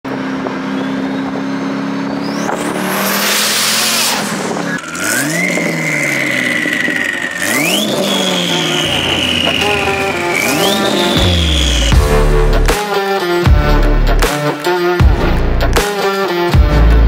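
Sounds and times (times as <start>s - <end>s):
car engine accelerating hard: 0.1s - 12.7s
turbo whistle climbing: 0.7s - 12.3s.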